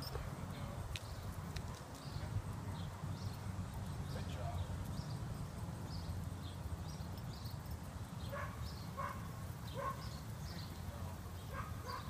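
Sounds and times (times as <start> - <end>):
dog barking: 8.3 - 10.0, 11.5 - 12.0.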